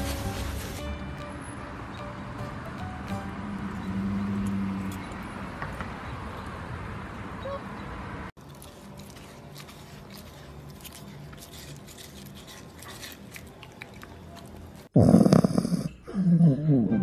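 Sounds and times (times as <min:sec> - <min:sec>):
dog snoring: 0:15.0 - 0:16.9.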